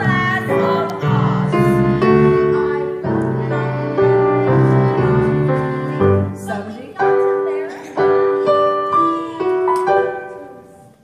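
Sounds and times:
orchestra with piano chords: 0.0 - 11.0
person singing: 8.4 - 10.8.

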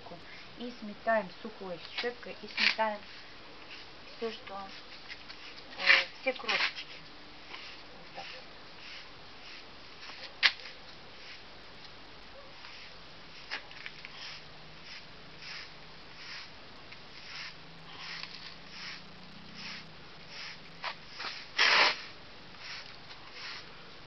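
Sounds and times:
hand brush sweeping: 2.5 - 11.5, 12.5 - 23.7.

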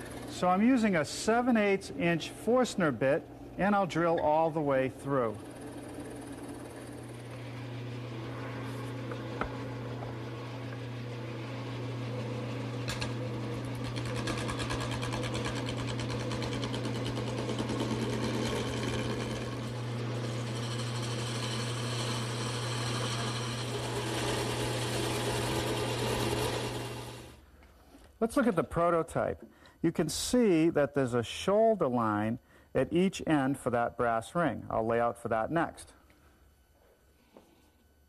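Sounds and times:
electric drill boring wood: 0.0 - 0.4, 5.3 - 8.3, 9.0 - 27.4.

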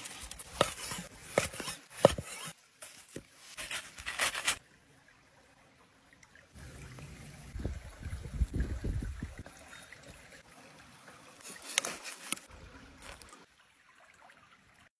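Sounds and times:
knife cutting crusty bun: 0.0 - 4.6
creek water flowing: 0.0 - 14.9.

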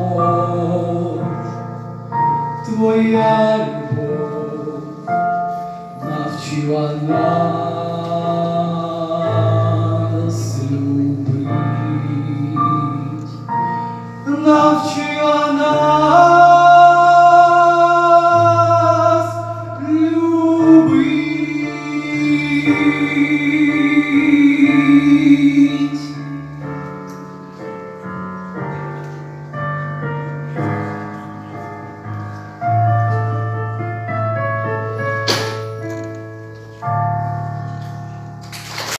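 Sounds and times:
keyboard and piano backing track: 0.0 - 38.9
boy singing: 14.3 - 26.3
sharp knock: 35.2 - 36.0.

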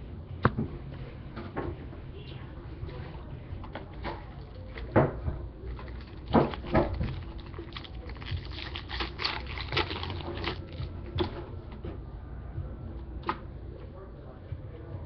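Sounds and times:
foil card pack crinkling: 5.7 - 10.8.

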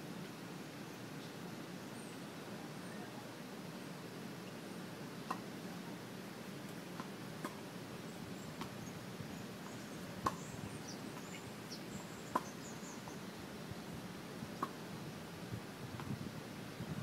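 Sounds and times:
faint bird chirps: 0.8 - 3.3, 8.0 - 13.9
racquet striking tennis ball: 10.2 - 10.5
tennis ball bouncing: 10.2 - 10.5, 12.3 - 12.5.

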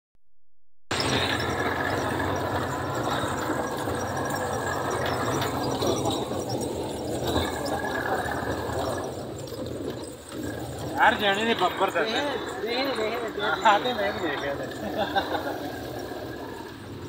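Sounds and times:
body and suspension rattles and squeaks: 0.9 - 17.0
engine rumbling under load: 0.9 - 17.0.

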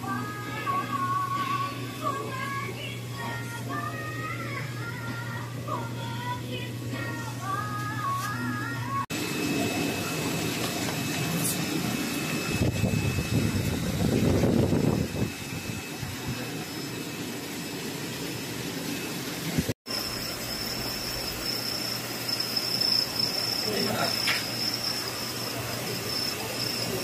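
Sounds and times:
insect chirring: 19.9 - 27.0.

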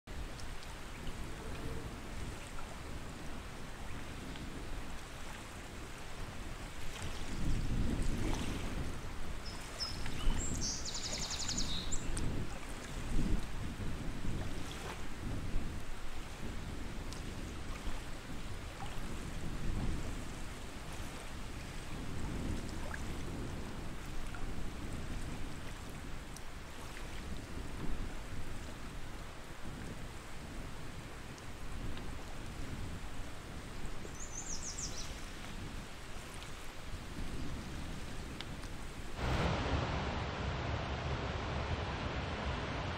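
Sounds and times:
rushing water: 0.1 - 42.9
faint ticks: 38.4 - 38.8
low rumble: 39.2 - 42.9.

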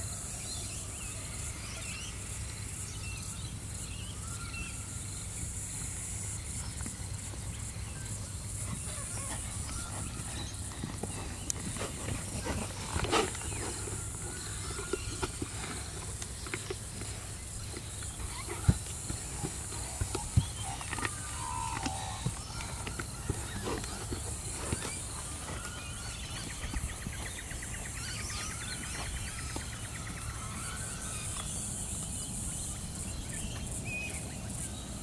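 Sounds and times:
high insect drone: 0.0 - 35.0
birds chirping: 1.4 - 35.0
horse hoofbeats on sand: 6.8 - 33.8.

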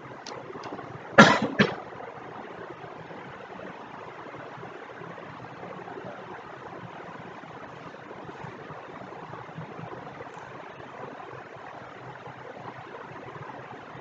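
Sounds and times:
recording hiss: 0.0 - 14.0
short loud noises: 1.2 - 1.8.

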